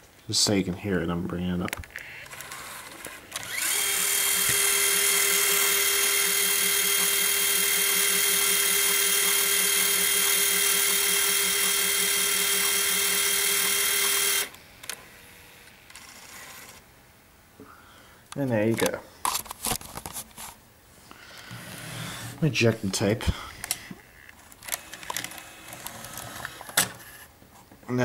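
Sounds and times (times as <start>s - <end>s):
camcorder tape motor whirring: 1.9s - 16.8s, 23.5s - 27.3s.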